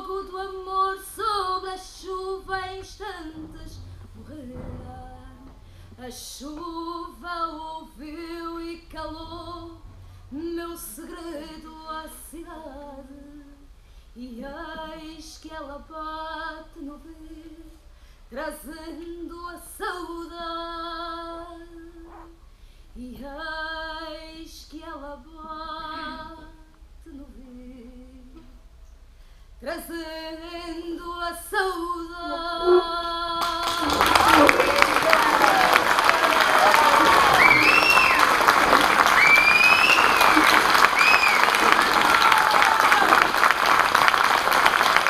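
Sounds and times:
breaths between phrases: 0:17.8 - 0:18.3, 0:29.1 - 0:29.6.

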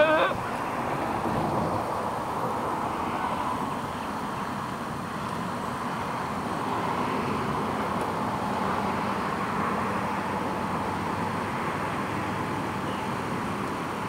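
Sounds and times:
distant road traffic: 0:00.0 - 0:14.0.

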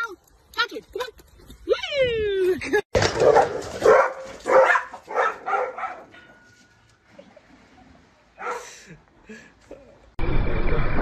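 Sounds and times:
dog barking: 0:03.2 - 0:06.1, 0:08.4 - 0:08.7.

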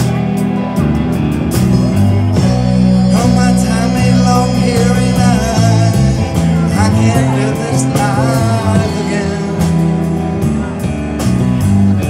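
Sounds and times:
bending guitar lead melody: 0:00.0 - 0:12.0
blues rock band playing: 0:00.0 - 0:12.0.

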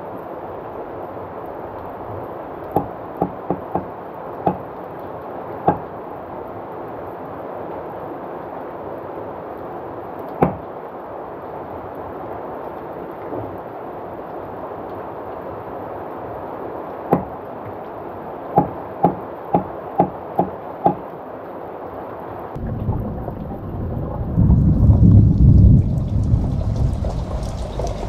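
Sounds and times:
heavy rain falling: 0:00.0 - 0:28.0
low rumble of thunder: 0:22.6 - 0:28.0.

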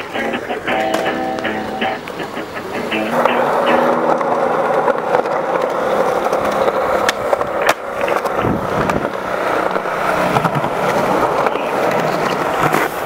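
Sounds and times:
skateboard landing clack: 0:00.0 - 0:13.0
skateboard wheels rolling on concrete: 0:00.0 - 0:13.0
skateboard tail pop: 0:00.7 - 0:09.2.

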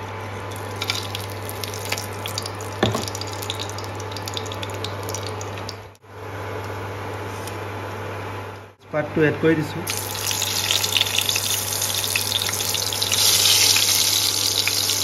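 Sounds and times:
spices sizzling in oil: 0:00.4 - 0:05.8, 0:09.9 - 0:15.0.

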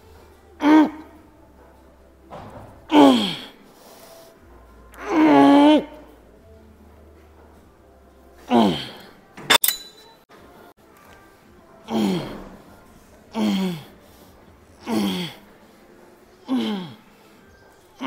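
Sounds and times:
sharp metal clink: 0:09.5 - 0:10.2.

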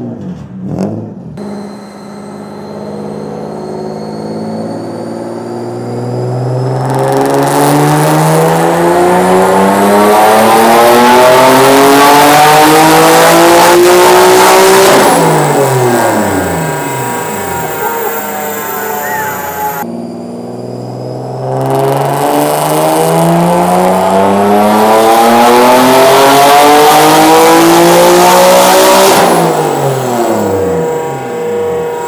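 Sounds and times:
car engine revving on dyno: 0:00.6 - 0:32.0
loud rushing noise: 0:12.9 - 0:22.0.

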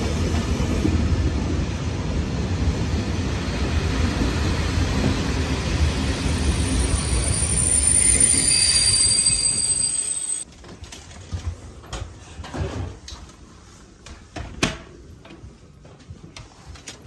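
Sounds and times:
train wheels rumbling and squealing: 0:02.4 - 0:10.5.

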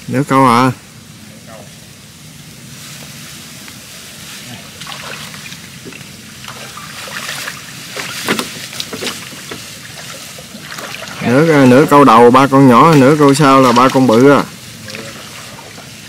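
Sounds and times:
steady low hum: 0:00.0 - 0:16.0
water splashing and dripping: 0:04.7 - 0:16.0.

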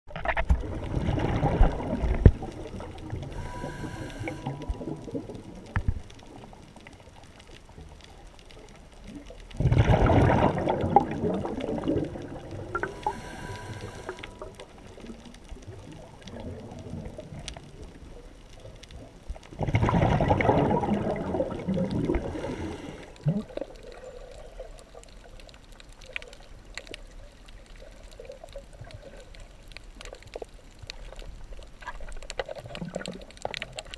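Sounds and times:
exhaled bubbles rushing underwater: 0:00.1 - 0:06.8, 0:09.0 - 0:25.5
regulator inhalation hiss: 0:03.2 - 0:05.0, 0:12.8 - 0:14.6, 0:22.1 - 0:23.2.

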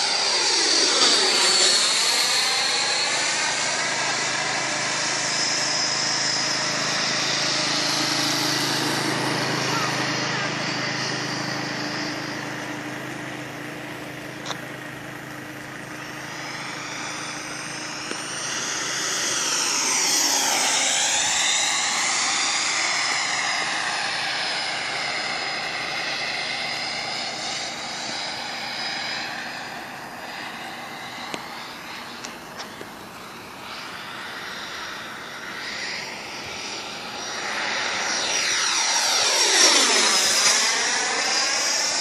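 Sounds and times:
electric ducted fan whining: 0:00.0 - 0:42.0.

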